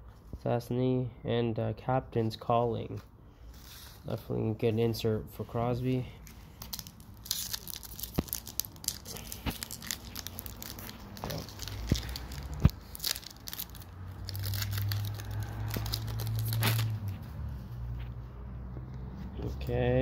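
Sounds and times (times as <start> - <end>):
foil wrapper crinkling: 6.2 - 17.2.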